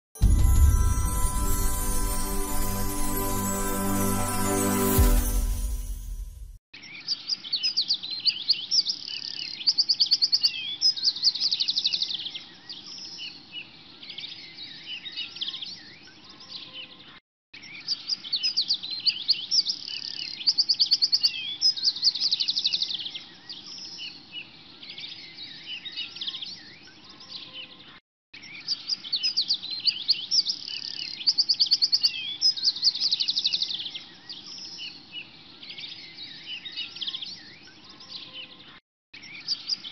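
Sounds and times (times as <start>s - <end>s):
small birds chirping and trilling: 6.8s - 39.9s.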